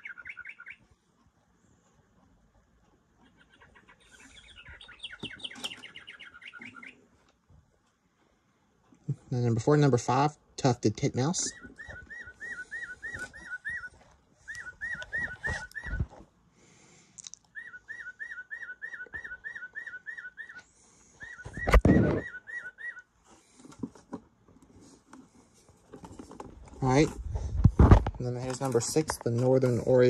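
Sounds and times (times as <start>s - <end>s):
recorded bird song whistles: 0.0s - 0.8s, 3.3s - 7.0s, 11.4s - 16.1s, 17.5s - 23.1s.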